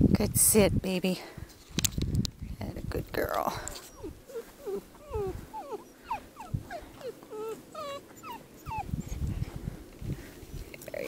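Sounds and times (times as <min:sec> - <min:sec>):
puppy whining: 0:03.7 - 0:09.4.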